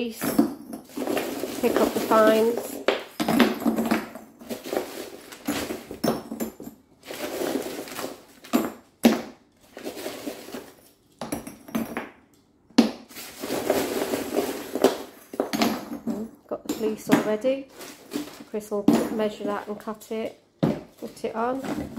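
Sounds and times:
ceramic tubes clinking and clattering: 0:00.0 - 0:09.0.

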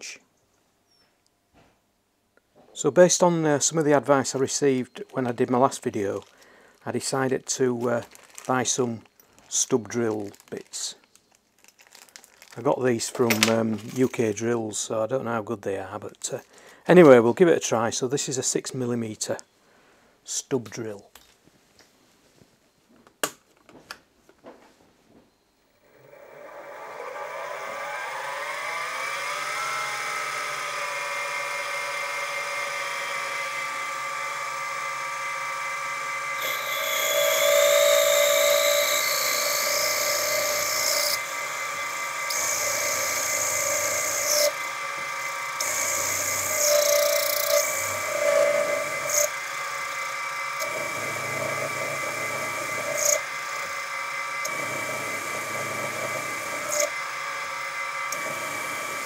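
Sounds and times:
drill cutting screech: 0:25.8 - 0:59.0
mill motor whining: 0:25.8 - 0:59.0.

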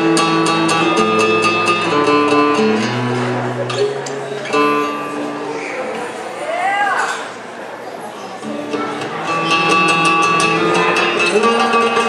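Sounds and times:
acoustic guitar chords: 0:00.0 - 0:05.6, 0:08.4 - 0:12.0.

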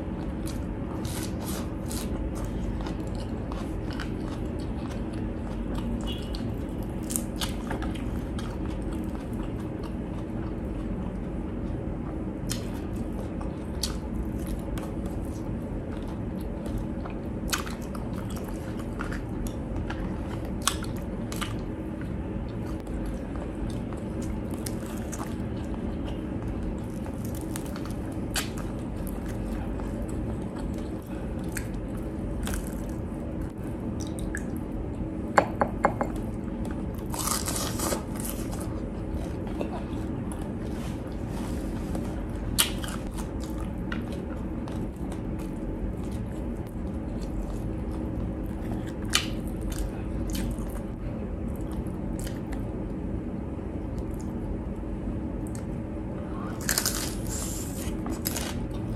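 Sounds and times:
steady low hum: 0:00.0 - 0:58.9
wet chewing: 0:36.3 - 0:52.7.

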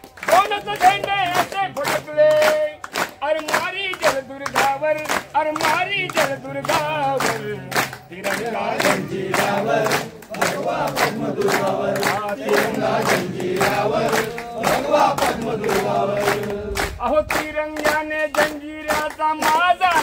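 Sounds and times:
group singing folk ballad: 0:07.4 - 0:17.0.

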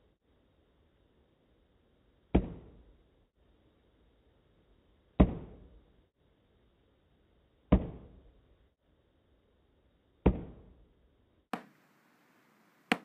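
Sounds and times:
drumstick tapping practice pad: 0:11.5 - 0:11.8.

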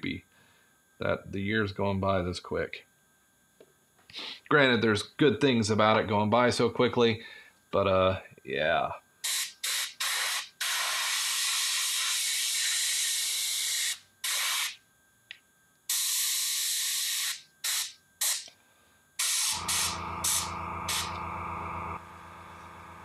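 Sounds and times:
airbrush spraying hiss: 0:09.2 - 0:14.8, 0:15.9 - 0:18.5, 0:19.2 - 0:21.1
low steady motor hum: 0:19.6 - 0:23.0.

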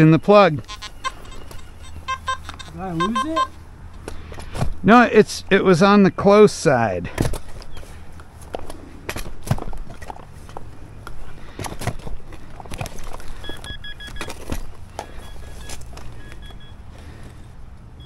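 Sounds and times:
metal detector high beeps: 0:00.7 - 0:03.6, 0:13.4 - 0:14.3, 0:15.2 - 0:16.8
knocks and rustles from walking: 0:07.2 - 0:17.4.

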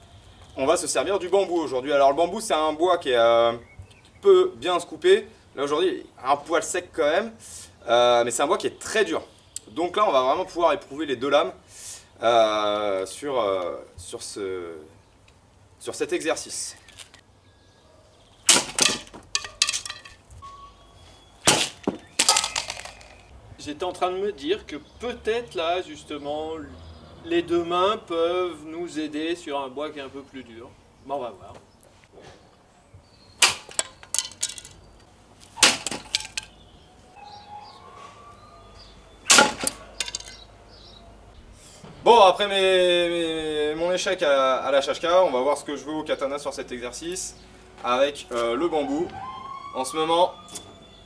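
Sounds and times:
sabre cracking bamboo: 0:18.4 - 0:20.3, 0:21.4 - 0:23.3, 0:33.4 - 0:36.6, 0:39.2 - 0:40.4
small knocks: 0:18.5 - 0:20.4, 0:21.4 - 0:23.3, 0:33.4 - 0:36.6, 0:39.3 - 0:40.4.

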